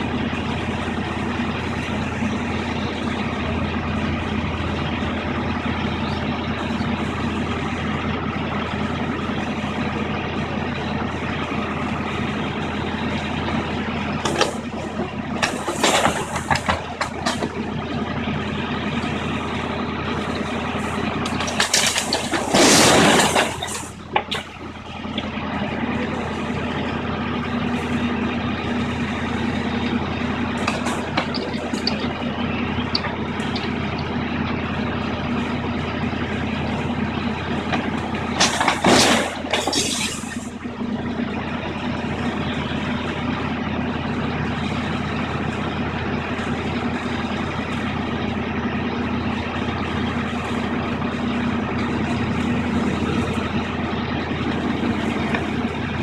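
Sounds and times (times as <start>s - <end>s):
excavator diesel engine running: 0.0s - 56.0s
masonry collapsing: 19.2s - 26.1s, 29.1s - 35.3s, 38.2s - 40.5s.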